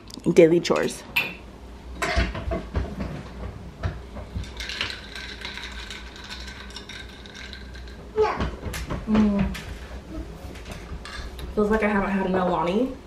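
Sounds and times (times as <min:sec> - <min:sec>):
ice cubes clinking in glass: 0:04.4 - 0:08.0.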